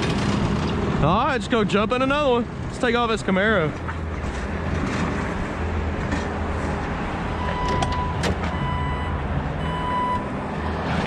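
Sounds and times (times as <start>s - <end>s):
short electronic beeps: 7.4s - 10.2s.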